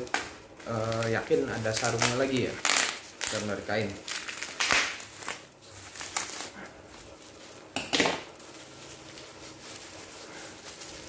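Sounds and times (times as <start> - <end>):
bubble wrap crinkling: 0.0 - 11.0
scissors cutting bubble wrap: 0.0 - 11.0.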